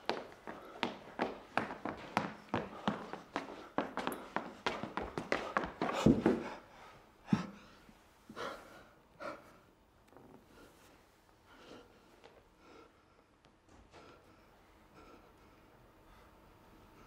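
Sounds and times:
footsteps on wooden stage: 0.0s - 6.6s
person panting: 0.0s - 9.7s.

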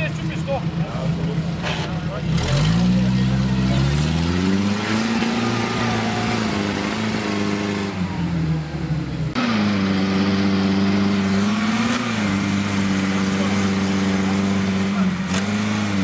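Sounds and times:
off-road vehicle engine revving: 0.0s - 16.0s.

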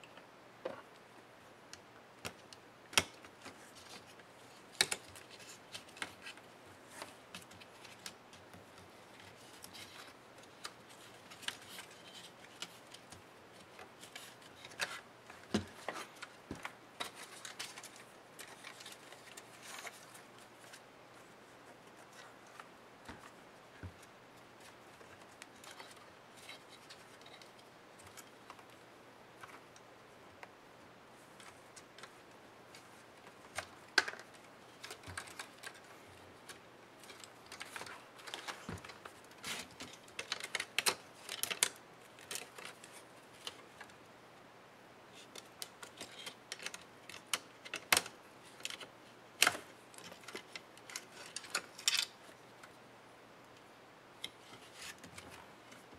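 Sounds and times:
plastic laptop parts clicking: 1.7s - 4.0s, 4.7s - 20.8s, 31.4s - 39.0s, 39.7s - 43.9s, 45.3s - 52.8s.

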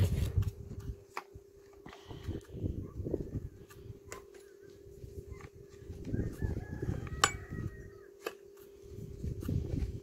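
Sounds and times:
rooster crowing faintly: 5.9s - 8.4s.

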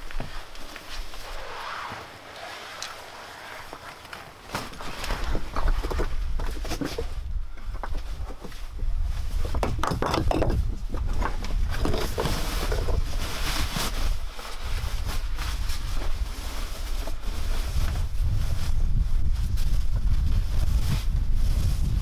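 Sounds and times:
clothing scraping against rock: 0.0s - 9.6s, 11.1s - 22.0s
wind rumble on microphone: 4.8s - 22.0s.

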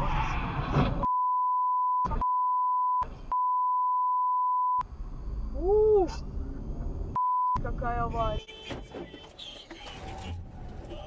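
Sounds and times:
censor bleep: 1.1s - 4.8s
road noise: 4.8s - 11.0s.

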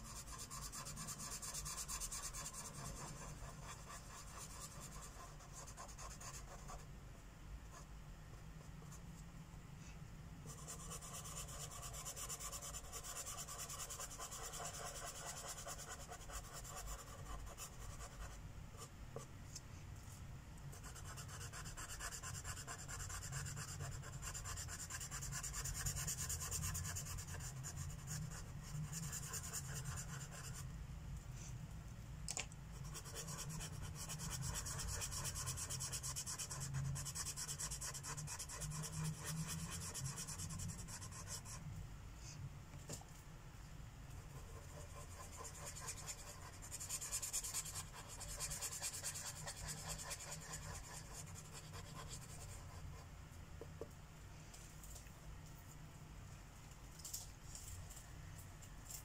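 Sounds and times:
marker rubbing on paper: 0.0s - 6.8s, 10.5s - 18.4s, 20.8s - 30.6s, 32.8s - 41.6s, 44.4s - 53.0s.

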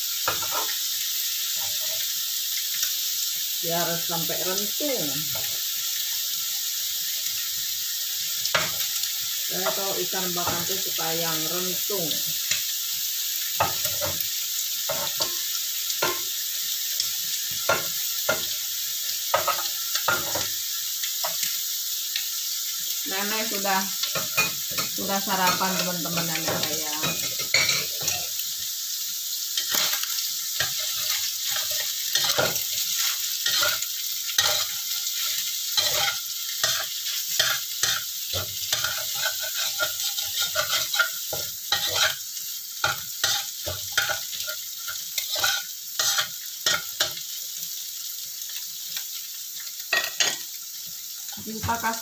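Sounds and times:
egg and sausage sizzling in oil: 0.0s - 52.0s
spatula scraping a wok: 0.2s - 0.8s, 24.0s - 28.3s, 29.6s - 42.2s, 42.8s - 47.2s.

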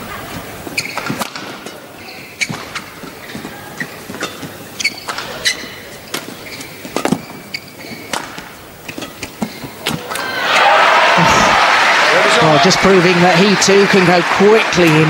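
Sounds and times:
shoes squeaking on court: 0.0s - 10.1s
rackets hitting shuttlecock: 0.8s - 10.2s.

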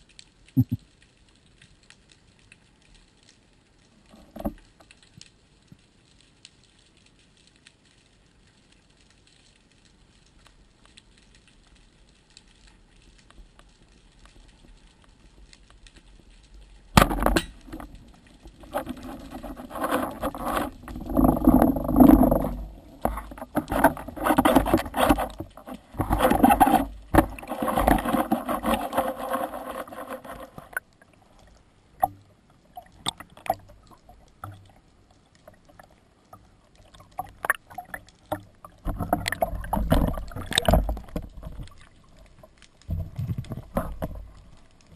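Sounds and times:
rushing and knocking water: 16.9s - 30.9s, 32.8s - 34.7s, 36.9s - 44.3s
speargun firing crack underwater: 17.0s - 17.9s.

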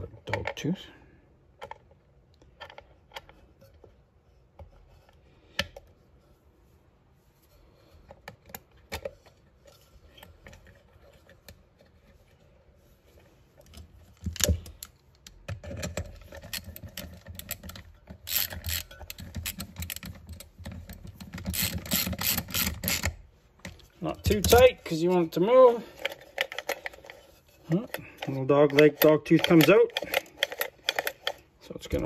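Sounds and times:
small metal parts clicking: 14.2s - 23.2s, 25.9s - 31.5s
socket ratchet clicking: 16.3s - 23.2s, 28.7s - 31.4s.

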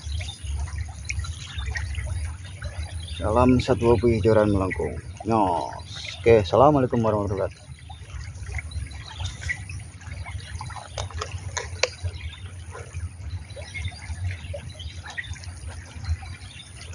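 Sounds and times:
stream water trickling and splashing: 0.0s - 16.9s.

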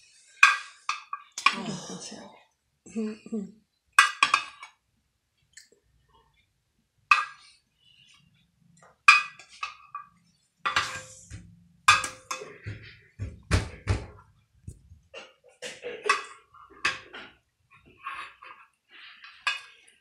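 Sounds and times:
utensils clinking against dishes: 10.7s - 12.7s.

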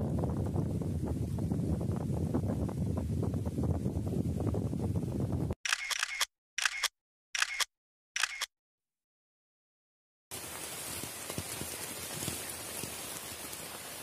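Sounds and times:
camera shutter clicks: 5.6s - 8.5s
steady rain: 10.3s - 14.0s.

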